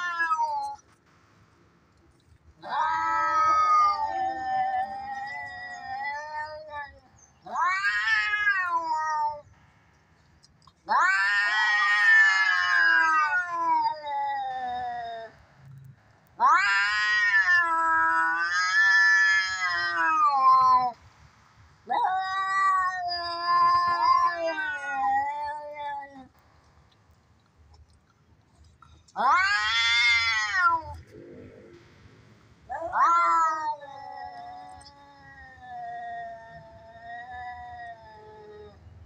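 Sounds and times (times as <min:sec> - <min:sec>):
cats yowling in a fight: 0:00.0 - 0:00.8, 0:02.6 - 0:09.5, 0:10.8 - 0:15.4, 0:16.4 - 0:21.0, 0:21.8 - 0:26.4, 0:29.2 - 0:31.1, 0:32.7 - 0:38.8.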